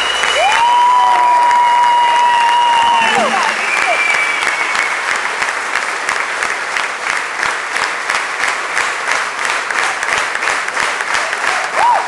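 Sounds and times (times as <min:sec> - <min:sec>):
high steady whistle: 0:00.0 - 0:00.9, 0:01.6 - 0:05.1
audience applauding: 0:00.0 - 0:12.0.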